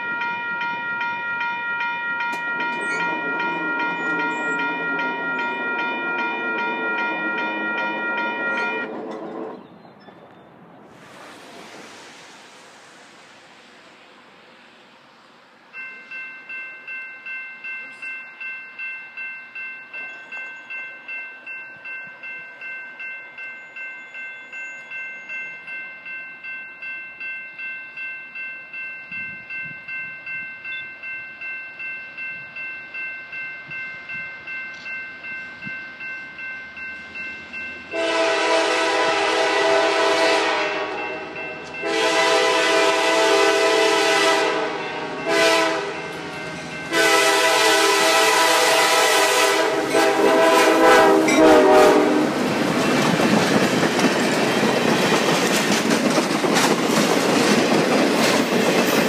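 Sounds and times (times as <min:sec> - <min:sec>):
crossing warning bell ringing: 0:00.0 - 0:09.6, 0:15.5 - 0:59.0
diesel locomotive horn blasts: 0:02.3 - 0:09.5, 0:37.9 - 0:52.4.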